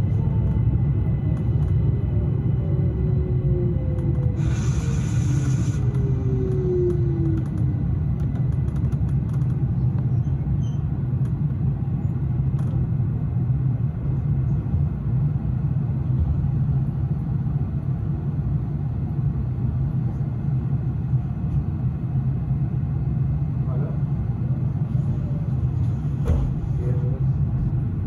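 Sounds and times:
train wheels rumbling: 0:00.0 - 0:17.8.

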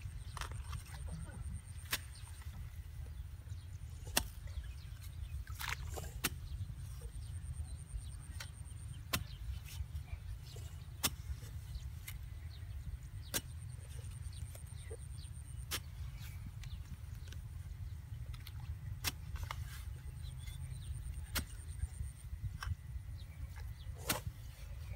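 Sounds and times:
steady low rumble: 0:00.0 - 0:24.9
hoe chopping into mud: 0:04.0 - 0:04.4, 0:08.3 - 0:09.4, 0:11.0 - 0:11.4, 0:13.2 - 0:13.7, 0:21.1 - 0:22.0, 0:24.0 - 0:24.4.

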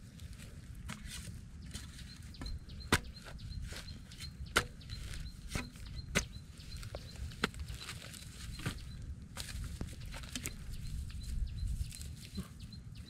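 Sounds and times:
spade chopping into dry mud: 0:00.8 - 0:03.8, 0:04.4 - 0:06.4, 0:07.4 - 0:08.0.

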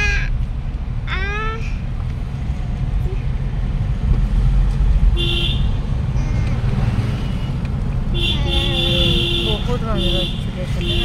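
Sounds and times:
car engine and road noise: 0:00.0 - 0:11.0
car horn toot: 0:05.2 - 0:05.8, 0:07.4 - 0:11.0.

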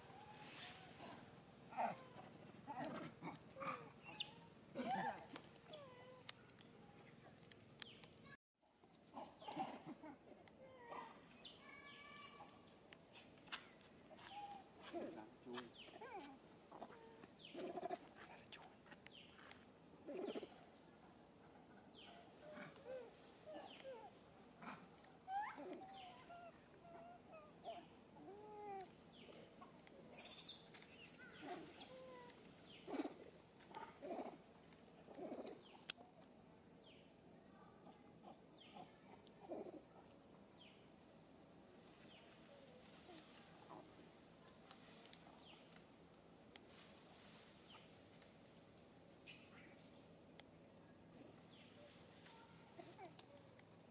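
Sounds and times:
macaque squeaks and coos: 0:03.9 - 0:06.2, 0:15.9 - 0:18.0, 0:25.3 - 0:28.9, 0:30.1 - 0:32.3
high insect buzz: 0:07.8 - 0:53.9.

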